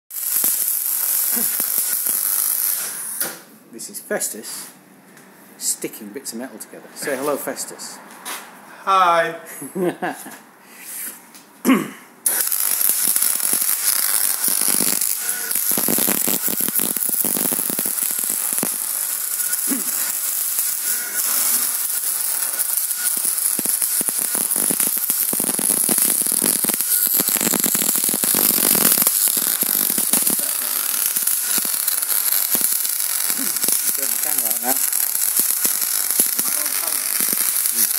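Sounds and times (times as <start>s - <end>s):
welding arc crackling: 0.1s - 3.4s, 12.2s - 37.9s.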